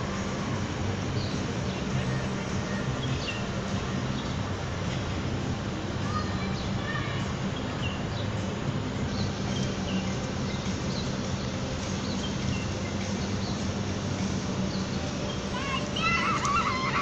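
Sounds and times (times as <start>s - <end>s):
steady low city hum: 0.0s - 17.0s.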